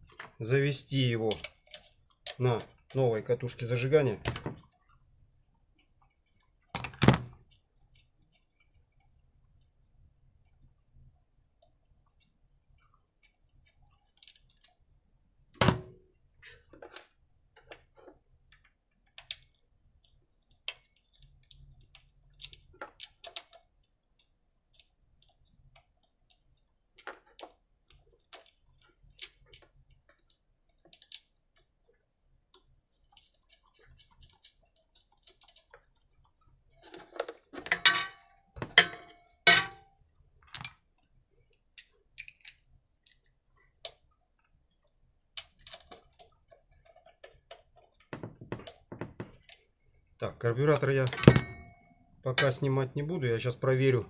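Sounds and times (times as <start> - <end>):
small clicks and knocks: 16.5 - 49.8
metallic clattering of tools: 36.9 - 39.9, 50.6 - 52.7.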